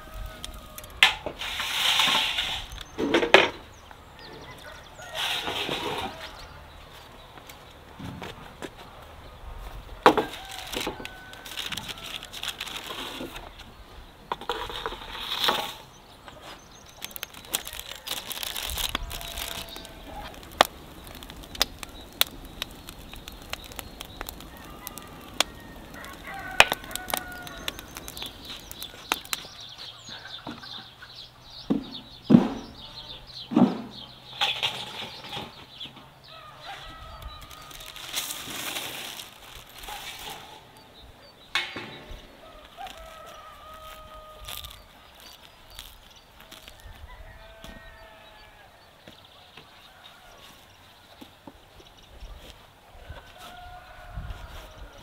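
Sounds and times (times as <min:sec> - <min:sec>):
chickens clucking: 0:10.0 - 0:38.3.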